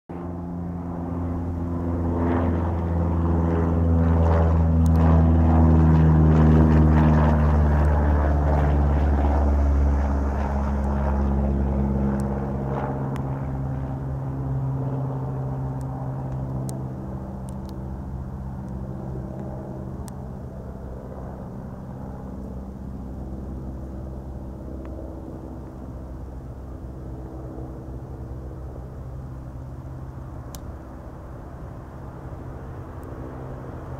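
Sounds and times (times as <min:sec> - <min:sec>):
propeller plane droning overhead: 0:00.1 - 0:33.9.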